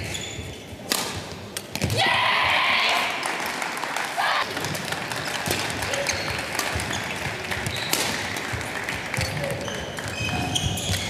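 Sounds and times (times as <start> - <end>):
shoe squeaks on court floor: 0.0 - 0.7, 5.9 - 8.2, 9.2 - 11.0
racket hitting shuttlecock: 0.8 - 2.0, 5.5 - 8.5.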